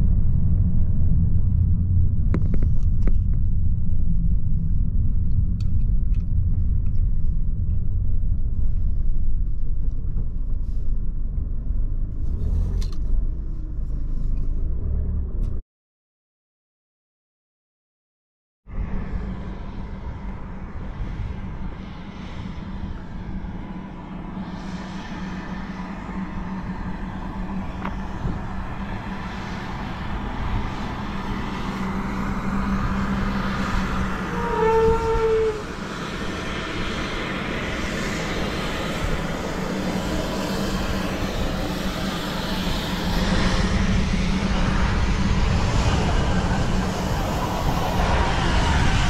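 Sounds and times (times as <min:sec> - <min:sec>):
vehicle engine and road noise: 0:00.0 - 0:15.6, 0:18.7 - 0:49.0
horn blast: 0:34.0 - 0:36.0.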